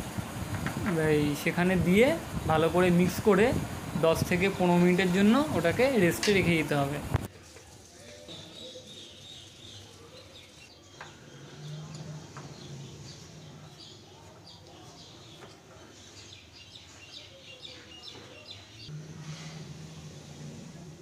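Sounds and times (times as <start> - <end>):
small birds chirping: 8.2 - 19.0.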